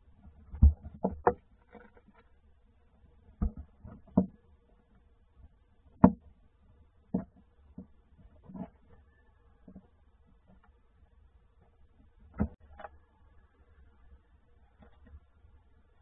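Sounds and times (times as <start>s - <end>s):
owl knocking in wooden box: 6.0s - 6.3s.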